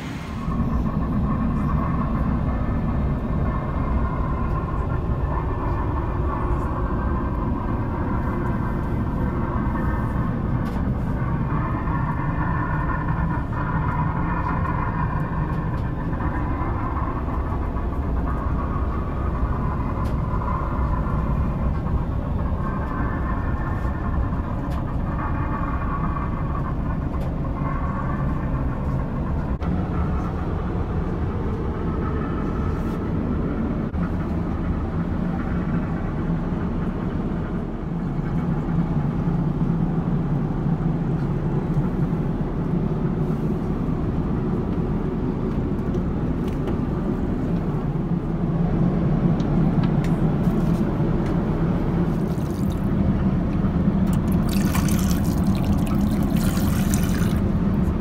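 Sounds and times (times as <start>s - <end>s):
airplane cabin drone: 0.0s - 58.0s
faucet running into sink: 54.1s - 57.4s.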